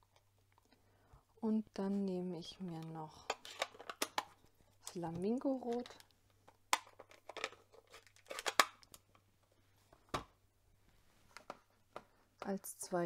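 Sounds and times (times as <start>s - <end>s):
plastic case clicking open: 3.3s - 4.4s, 5.7s - 9.1s.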